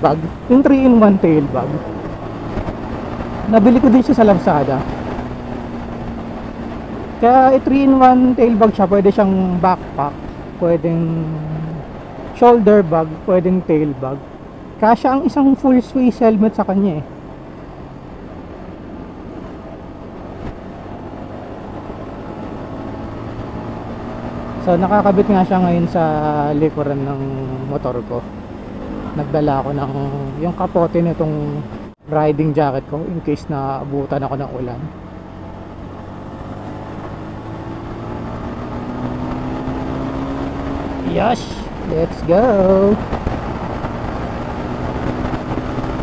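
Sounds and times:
motorcycle engine running: 0.0s - 12.4s, 33.6s - 46.0s
road noise: 0.0s - 46.0s
wind rumble on microphone: 33.6s - 46.0s.

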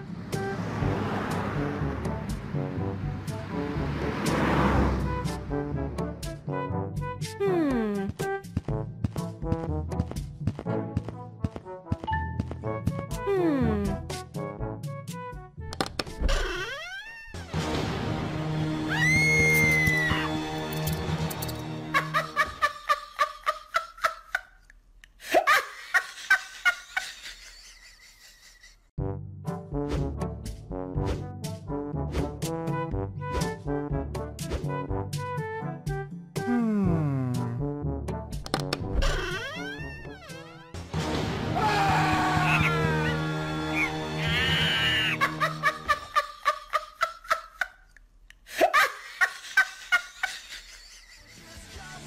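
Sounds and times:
high-pitched laughter: 16.3s - 17.5s, 21.9s - 24.7s, 39.0s - 40.7s, 43.8s - 47.9s, 48.5s - 51.8s.

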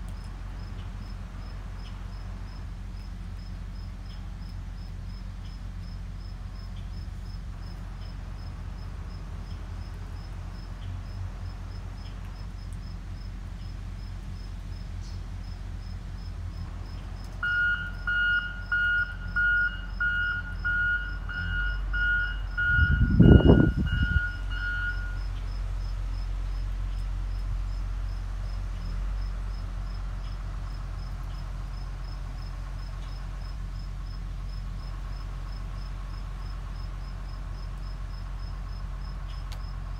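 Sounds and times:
steady low hum: 0.0s - 39.9s
crickets chirping: 0.2s - 39.9s
electronic beeps: 17.4s - 25.2s
loud low rumble: 19.2s - 39.1s.

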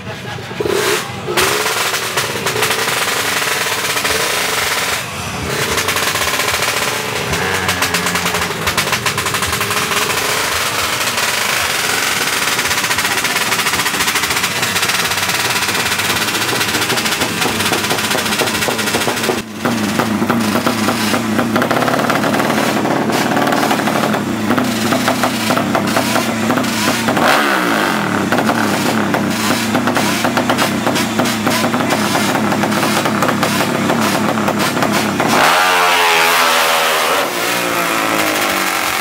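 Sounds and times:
racing motorcycle engines revving: 0.0s - 39.0s.

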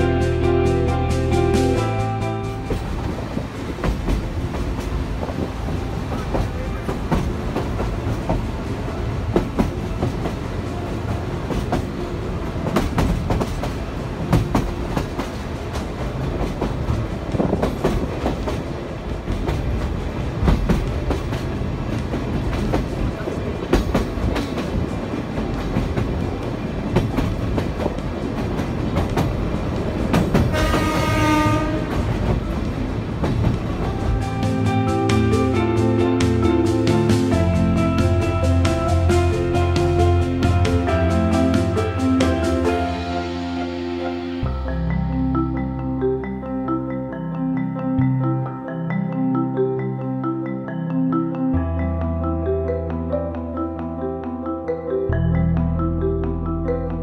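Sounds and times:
train wheels rumbling on rails: 0.0s - 45.1s.

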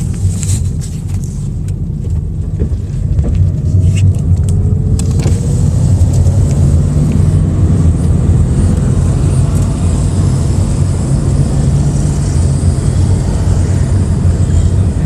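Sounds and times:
car engine running at low revs: 0.0s - 15.0s.

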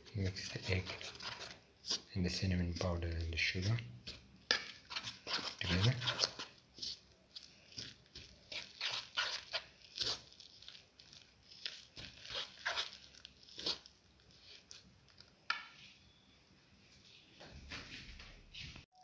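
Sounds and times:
plastic spoon scraping a bowl: 0.1s - 10.3s, 11.5s - 14.8s.

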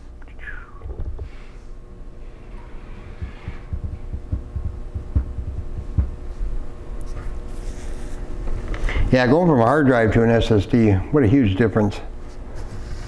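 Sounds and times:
steady low hum: 0.0s - 13.0s
faint low thumps: 3.1s - 6.3s.

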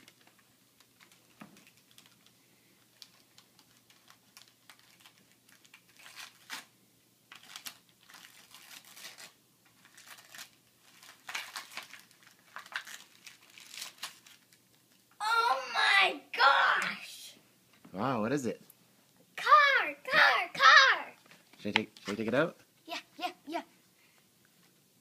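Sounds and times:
wrapping paper tearing and crinkling: 0.0s - 15.0s.

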